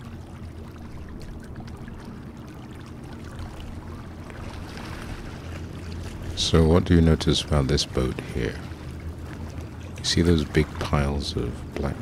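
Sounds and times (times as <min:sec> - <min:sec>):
boat engine droning: 0:00.0 - 0:12.0
waves lapping at shore: 0:00.0 - 0:12.0.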